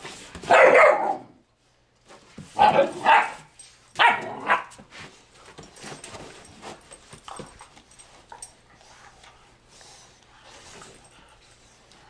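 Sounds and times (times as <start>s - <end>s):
dogs barking: 0.5s - 1.3s, 2.6s - 3.4s, 4.0s - 4.7s
dogs scuffling: 2.0s - 12.0s.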